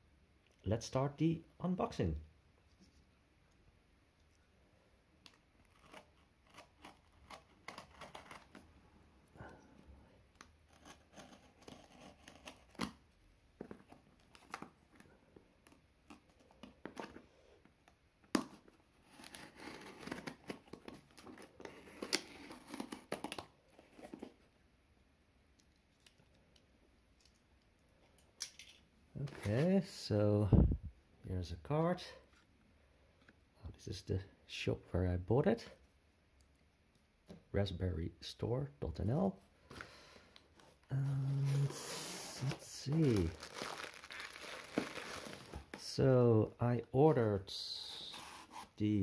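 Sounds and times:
cardboard flaps tearing open: 0:41.5 - 0:45.7.

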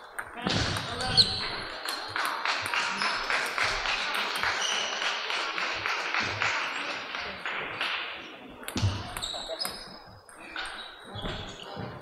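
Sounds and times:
table tennis ball hits: 0:00.0 - 0:06.5, 0:07.6 - 0:09.9.

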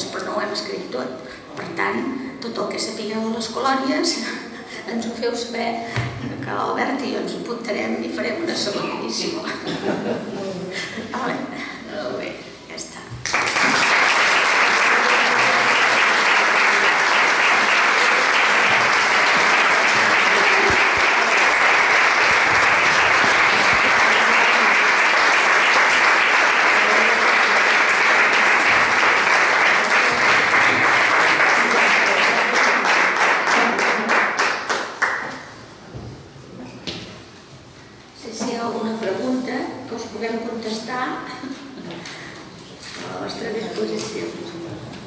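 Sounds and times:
audience clapping: 0:13.2 - 0:35.6.

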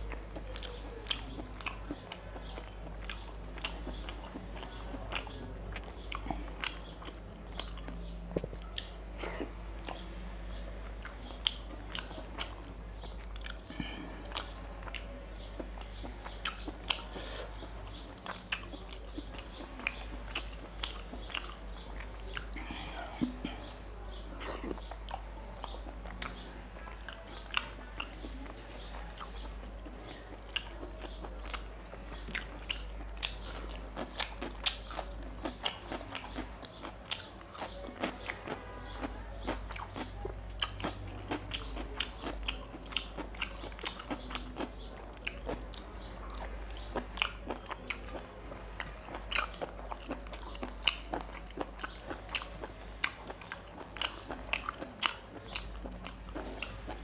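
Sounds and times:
person chewing food: 0:00.0 - 0:57.0.

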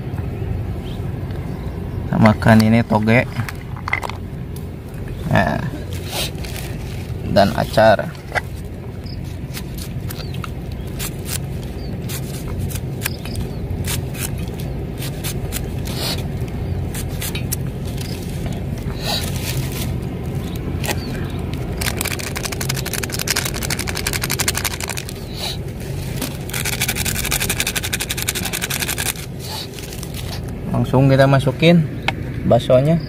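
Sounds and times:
low rumble: 0:00.0 - 0:32.5
rapid crackling: 0:09.5 - 0:30.5
knife cutting cucumber: 0:12.0 - 0:16.2.

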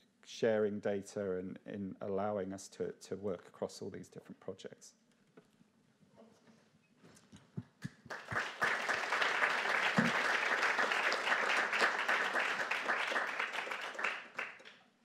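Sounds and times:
audience applauding: 0:08.1 - 0:14.8.

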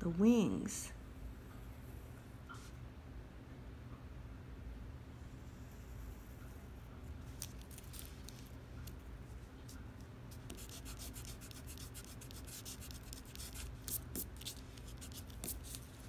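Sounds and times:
pencil scratching on paper: 0:10.3 - 0:16.0.

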